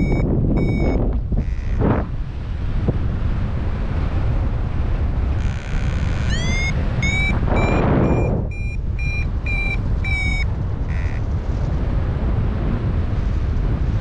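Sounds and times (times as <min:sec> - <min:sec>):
variometer beeping: 0:00.0 - 0:01.8, 0:05.4 - 0:11.2
wind rushing over microphone: 0:00.0 - 0:14.0
rising electronic chirps: 0:05.5 - 0:11.2.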